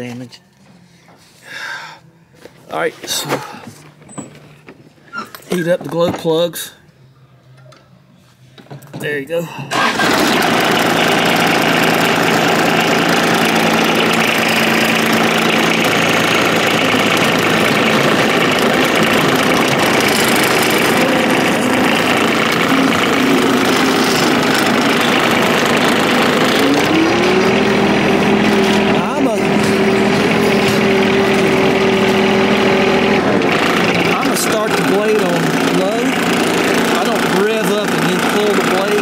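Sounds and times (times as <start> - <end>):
diesel tractor engine idling: 9.7 - 39.0.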